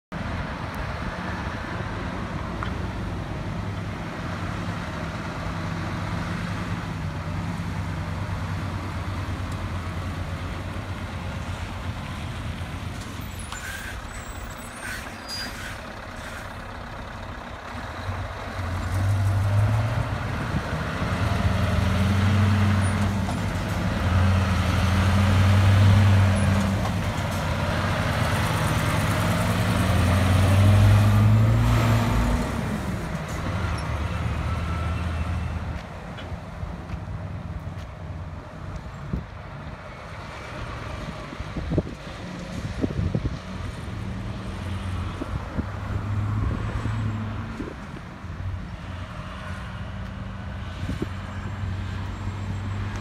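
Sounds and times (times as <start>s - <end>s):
diesel truck engine passing: 0.2s - 38.6s.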